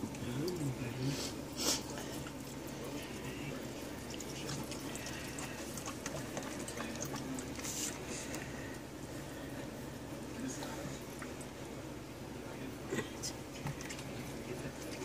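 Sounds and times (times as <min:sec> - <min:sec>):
water splashing in plastic tub: 0:03.9 - 0:07.9.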